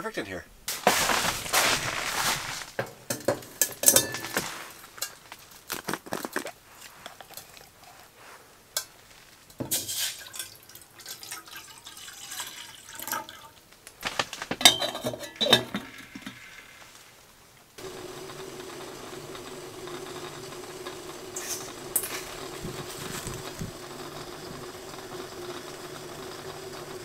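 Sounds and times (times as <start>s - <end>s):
metal kettle lid clinking: 3.1s - 4.4s, 14.6s - 16.4s, 21.3s - 23.6s
water pouring into kettle: 9.6s - 13.6s, 17.8s - 27.0s.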